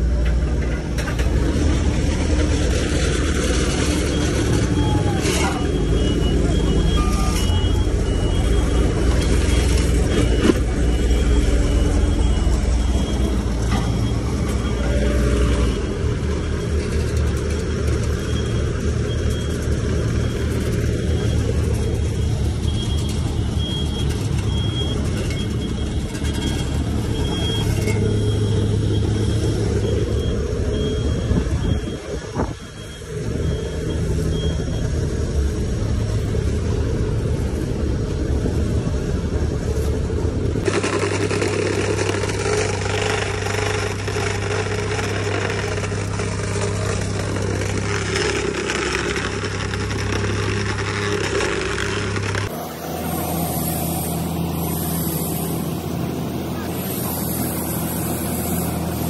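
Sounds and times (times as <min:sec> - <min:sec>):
heavy machinery engines running: 0:00.0 - 0:59.0
small engine running: 0:40.6 - 0:59.0.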